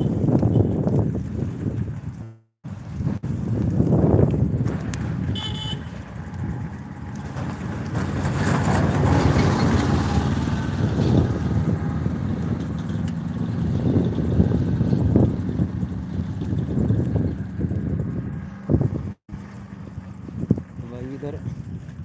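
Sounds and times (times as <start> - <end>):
churning water rumble: 0.0 - 22.0
short horn-like tone: 5.3 - 6.0.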